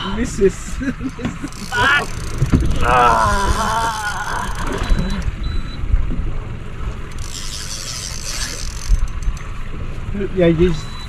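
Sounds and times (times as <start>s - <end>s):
rumble of wind and sea: 0.0s - 11.0s
man groaning: 1.7s - 4.8s.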